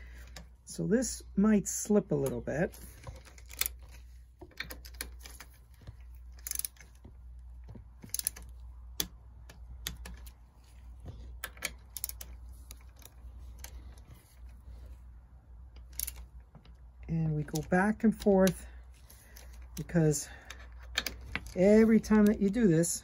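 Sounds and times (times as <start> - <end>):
steady low hum: 0.0 - 23.0
torque wrench clicking: 8.0 - 9.2, 15.8 - 16.2.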